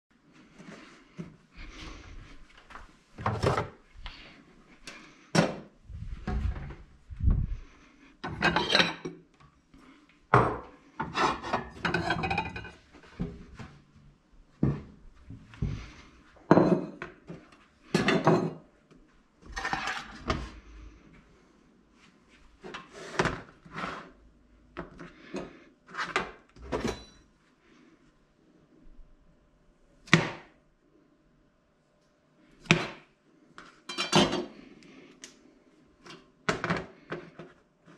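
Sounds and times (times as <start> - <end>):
kitchenware clunking and clattering: 8.2 - 9.2, 10.3 - 12.8, 16.5 - 17.1, 17.9 - 18.7, 19.5 - 20.4, 26.6 - 27.3, 33.9 - 34.6.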